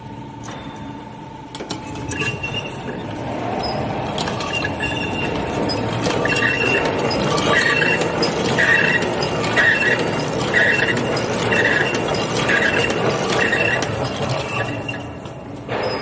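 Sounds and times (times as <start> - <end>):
machine clattering with metallic clinks: 0.4 - 16.0
short high squeaks: 1.9 - 16.0.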